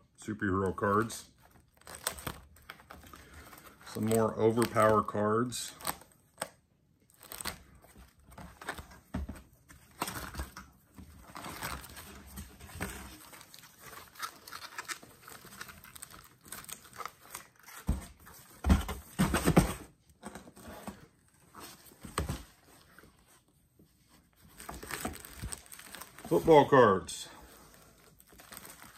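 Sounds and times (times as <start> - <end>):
plastic sleeves crinkling: 0.4 - 18.5, 21.5 - 28.9.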